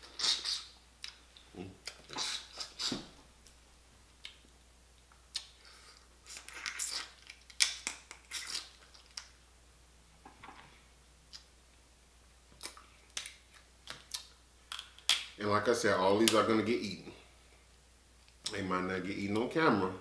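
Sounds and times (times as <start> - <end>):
crab shells cracking: 6.3 - 9.3, 12.6 - 15.4.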